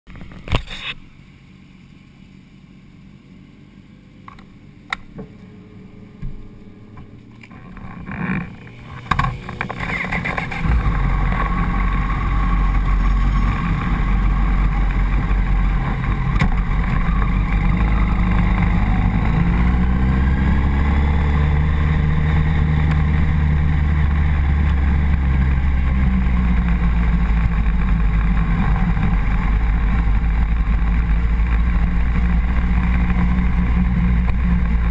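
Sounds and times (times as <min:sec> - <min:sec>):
motorcycle engine: 0:03.8 - 0:34.9
wind noise: 0:07.6 - 0:34.9.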